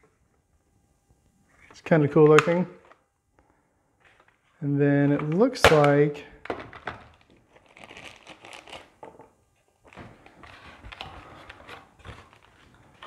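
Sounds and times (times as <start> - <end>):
plastic bag crinkling: 6.6 - 13.0
cardboard rustling and scraping: 9.9 - 13.0.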